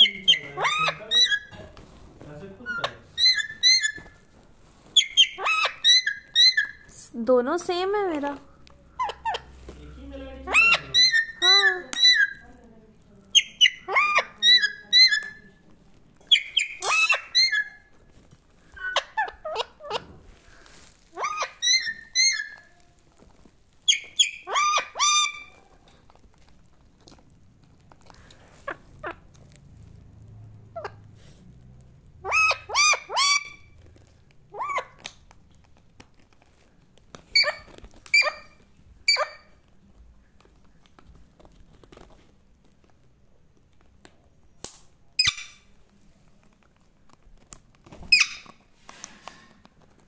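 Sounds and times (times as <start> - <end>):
parakeet calls: 0.0 - 1.6, 2.6 - 4.2, 4.9 - 6.9, 10.4 - 12.4, 16.3 - 17.8, 21.1 - 22.7, 23.8 - 25.6, 32.2 - 33.7, 34.5 - 35.1.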